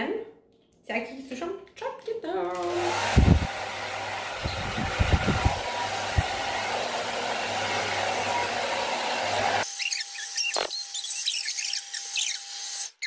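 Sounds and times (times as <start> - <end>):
hair dryer blowing: 2.5 - 9.7.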